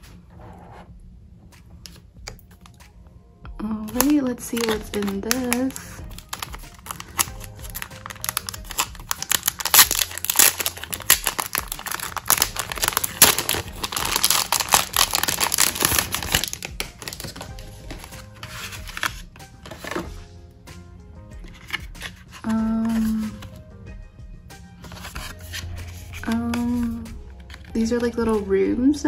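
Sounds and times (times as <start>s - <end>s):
soft background music: 0.0s - 29.0s
packaging crinkling and rustling: 3.9s - 20.1s.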